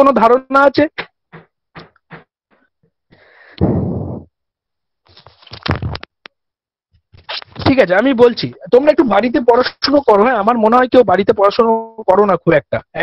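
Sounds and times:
breath blown into microphone: 3.1s - 4.3s.

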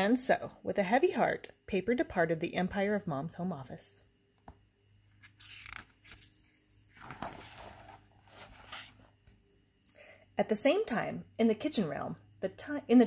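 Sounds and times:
paper page rustling: 5.1s - 9.1s.

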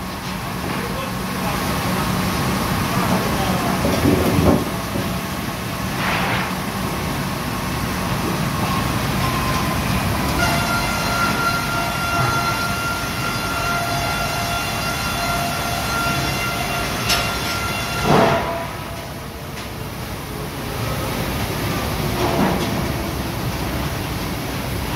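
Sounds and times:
sawmill machinery running: 0.0s - 24.9s
wood knocking on rollers: 3.7s - 5.2s.

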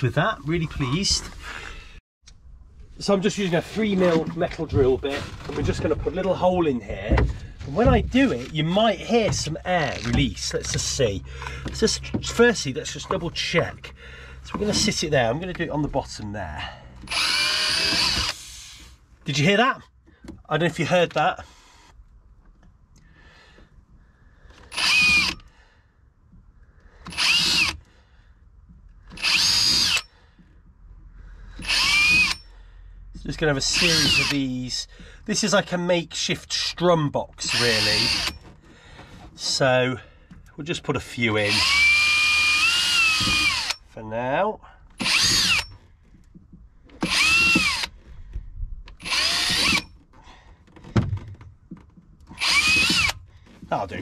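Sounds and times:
power drill whining: 17.0s - 18.9s, 24.5s - 25.5s, 26.9s - 28.0s, 29.1s - 30.2s, 31.5s - 32.5s, 33.7s - 34.4s, 37.4s - 39.6s, 41.4s - 43.9s, 45.0s - 45.8s, 46.9s - 48.1s, 49.0s - 51.0s, 52.3s - 53.6s.

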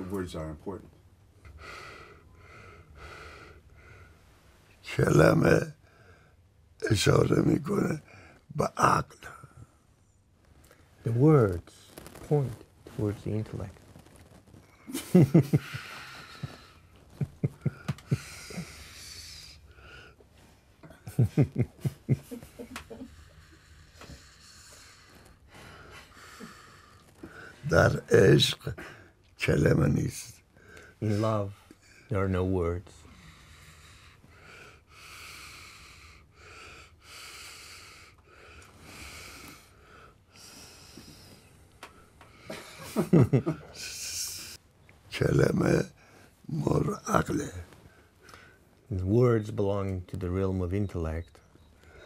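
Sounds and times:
person breathing slowly: 1.5s - 4.4s, 15.5s - 20.8s, 22.9s - 27.6s, 33.0s - 42.6s
soft chuckles: 14.8s - 18.8s, 20.8s - 23.2s.

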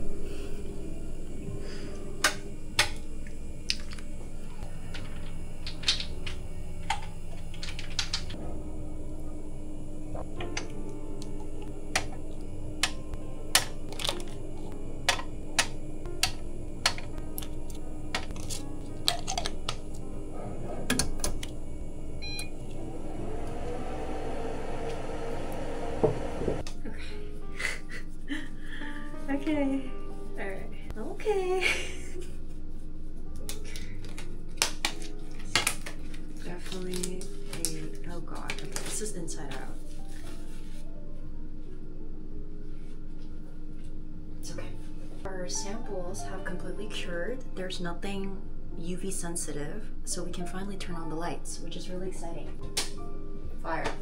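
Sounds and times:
faint steady hum: 0.0s - 27.4s.

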